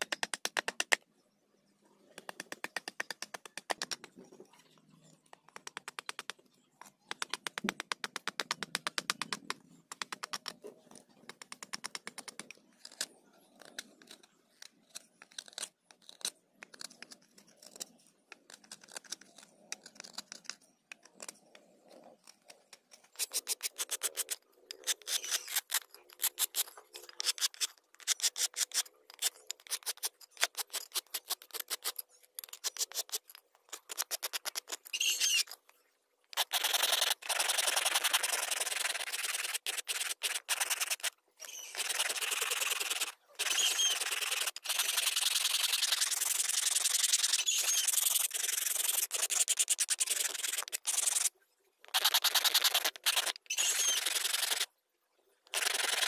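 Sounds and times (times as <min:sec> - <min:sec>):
knife scraping wood: 0:10.0 - 0:21.4, 0:22.2 - 0:35.6, 0:36.3 - 0:51.3, 0:51.9 - 0:54.7, 0:55.5 - 0:56.0.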